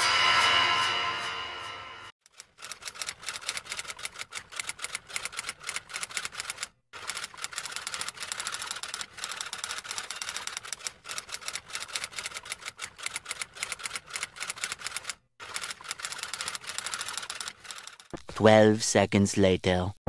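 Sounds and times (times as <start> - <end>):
rapid keyboard typing clicks: 2.3 - 18.1.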